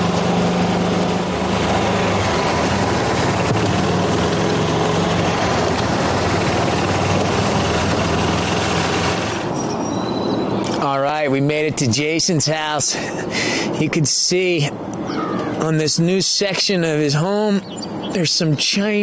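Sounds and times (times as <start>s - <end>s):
golf cart engine running: 0.0s - 9.6s
road noise: 0.0s - 19.0s.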